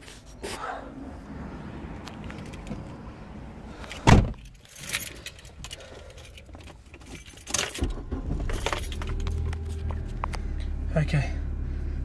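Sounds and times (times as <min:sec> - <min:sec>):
light metallic rattles: 0:03.8 - 0:10.6.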